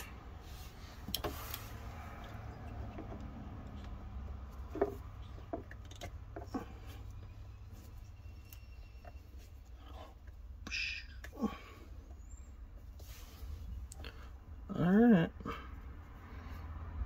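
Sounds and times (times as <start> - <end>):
small clicks and knocks: 1.0 - 6.7.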